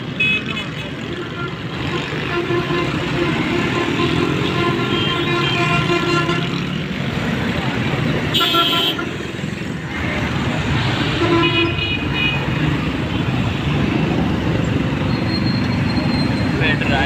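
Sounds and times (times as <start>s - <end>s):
engine and road rumble: 0.0s - 17.0s
vehicle horns honking: 0.1s - 6.8s, 8.2s - 9.3s, 11.0s - 12.6s.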